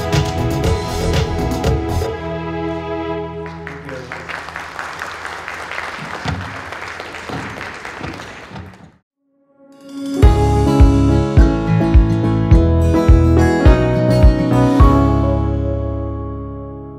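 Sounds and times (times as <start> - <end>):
audience applause: 3.4 - 9.0.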